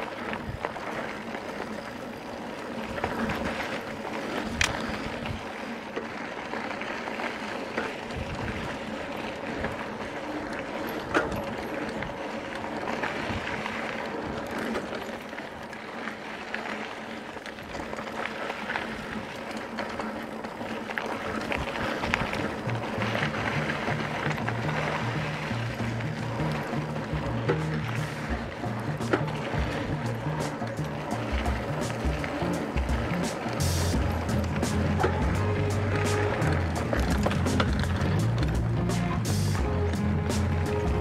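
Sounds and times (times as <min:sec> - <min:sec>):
bike clicks and knocks: 0:00.0 - 0:41.0
bike tyres on dirt: 0:00.0 - 0:41.0.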